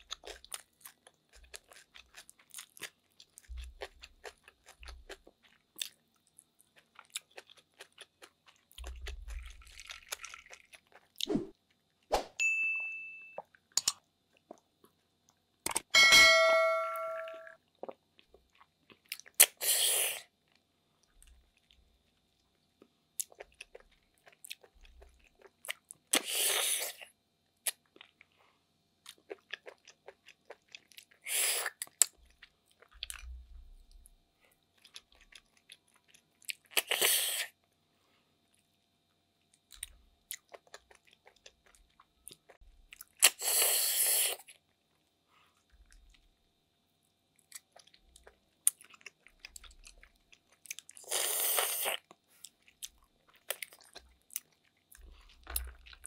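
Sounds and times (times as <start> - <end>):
soft chewing: 0.0 - 12.1, 13.4 - 15.8, 17.6 - 56.0
glass set down with clink: 16.0 - 17.5.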